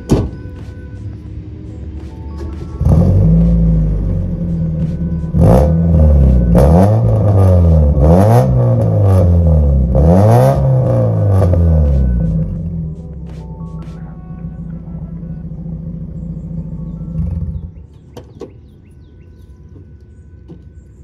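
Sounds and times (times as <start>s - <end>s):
car engine idling and revving: 0.0s - 21.0s.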